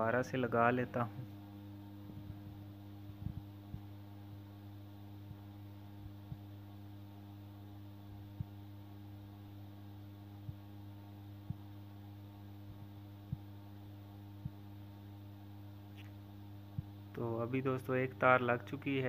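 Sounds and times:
electrical mains hum: 0.0 - 19.0.

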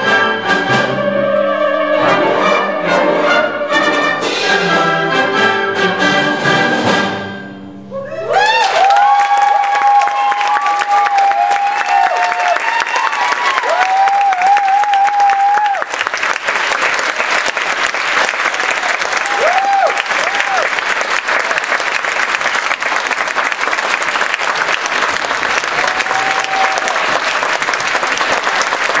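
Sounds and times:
audience applauding: 8.2 - 29.0.

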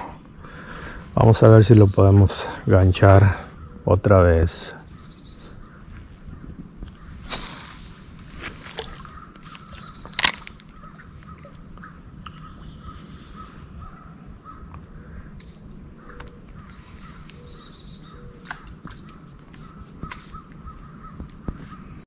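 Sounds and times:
faint calls: 0.0 - 7.2, 8.5 - 22.0
high-pitched insect drone: 0.0 - 22.0
rustle: 6.8 - 11.9, 15.4 - 22.0.

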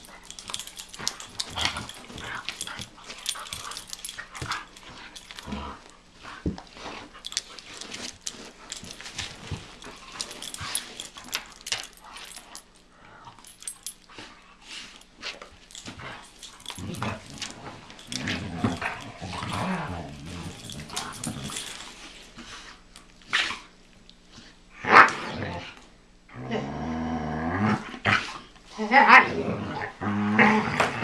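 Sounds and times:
dogs scuffling and snapping: 0.0 - 12.8, 13.4 - 24.4
dog growling: 16.1 - 21.8, 24.8 - 31.0.

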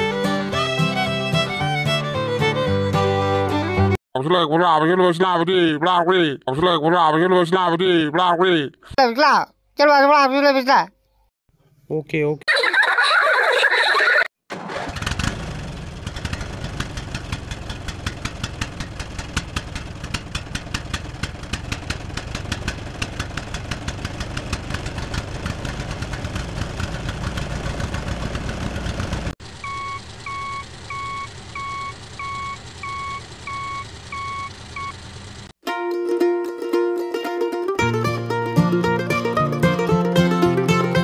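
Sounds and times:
tractor engine chugging: 14.5 - 35.5
electronic beeping: 29.6 - 35.0.

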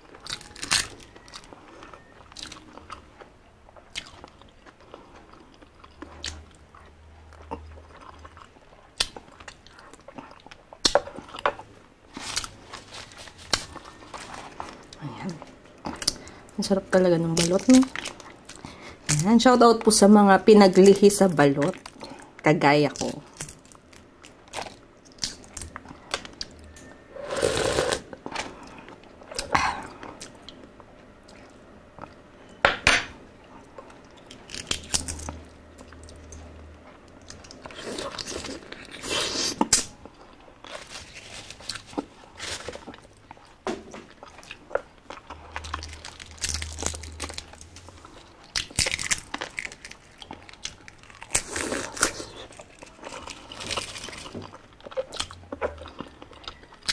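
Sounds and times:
biting and chewing: 0.0 - 15.0, 33.6 - 56.9.

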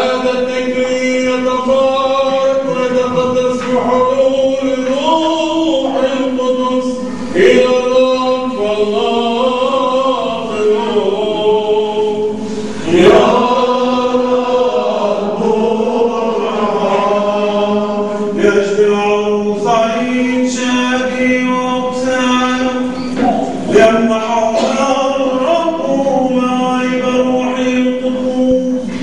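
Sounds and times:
men singing a chant: 0.0 - 29.0.

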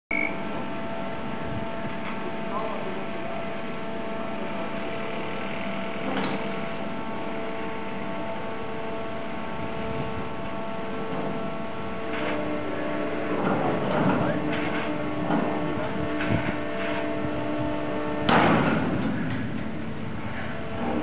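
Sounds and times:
crane machinery hum: 0.1 - 21.0.

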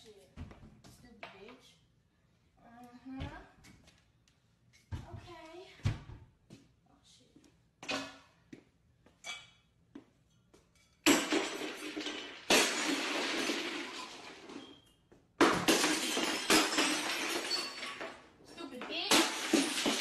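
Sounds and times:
loud crashes: 11.1 - 14.7, 15.4 - 18.2, 19.1 - 20.0.

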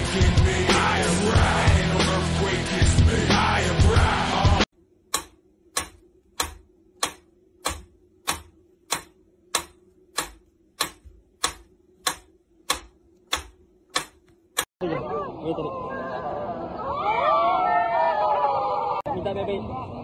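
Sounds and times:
metronome ticking: 5.1 - 14.7.

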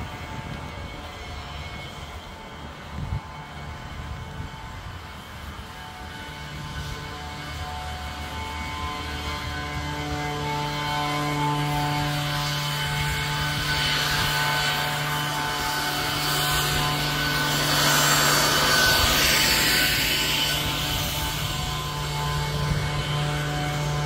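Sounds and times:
machine humming: 0.1 - 24.0
rushing noise: 11.6 - 24.0.

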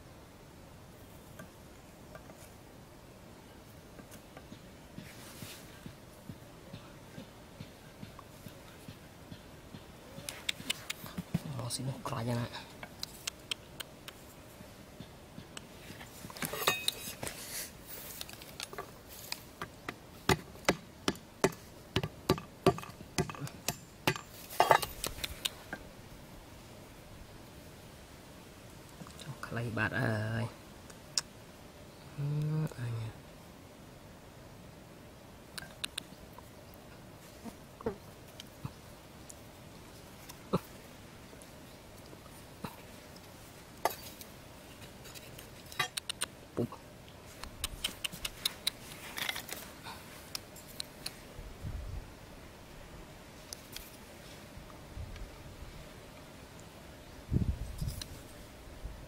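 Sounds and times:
sticks scraping and handling: 15.6 - 19.6, 41.4 - 46.0, 47.3 - 51.2
short rustle: 15.7 - 19.6, 47.2 - 51.4.

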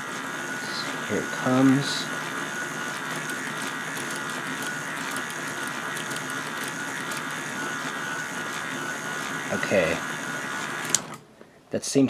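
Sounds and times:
motor whine: 0.0 - 11.3
plastic gears clicking: 3.2 - 7.3.

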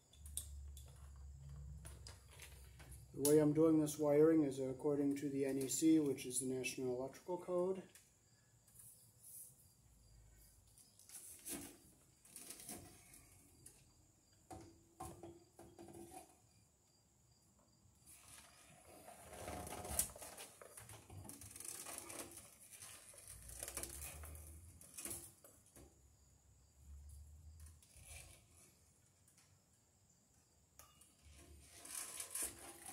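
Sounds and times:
small clicks and rustling of wire: 0.1 - 3.5, 18.2 - 26.0.

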